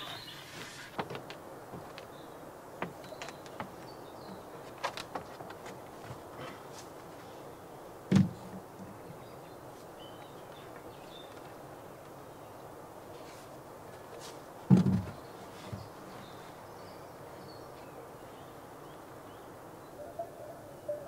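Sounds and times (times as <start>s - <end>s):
board knocking on timber frame: 8.1s - 8.6s, 14.7s - 15.8s.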